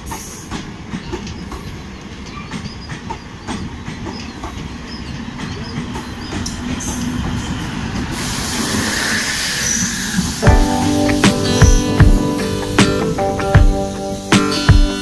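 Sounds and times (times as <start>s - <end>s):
train rumble: 0.0s - 15.0s
train wheels clicking over rail joints: 0.0s - 15.0s
diesel engine and fans hissing: 4.6s - 15.0s.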